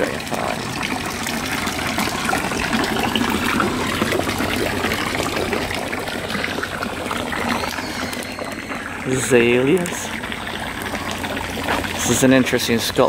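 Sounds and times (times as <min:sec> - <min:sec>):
fountain water splashing and trickling: 0:00.0 - 0:13.0.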